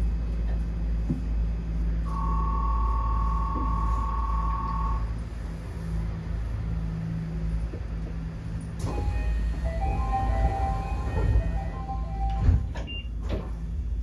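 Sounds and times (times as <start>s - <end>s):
train low hum: 0.0s - 14.0s
electronic chime melody: 9.0s - 12.6s.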